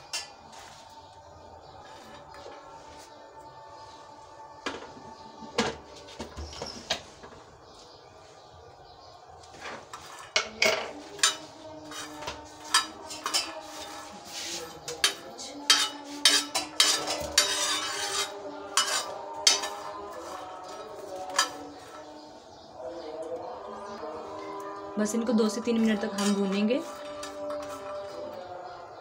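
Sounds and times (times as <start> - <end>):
spatula scraping on a griddle: 0.0 - 3.5, 9.4 - 22.2, 26.0 - 28.5.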